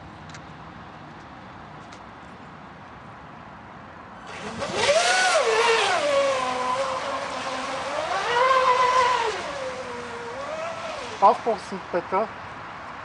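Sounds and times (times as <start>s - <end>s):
model speedboat motor at high speed: 4.3s - 12.3s.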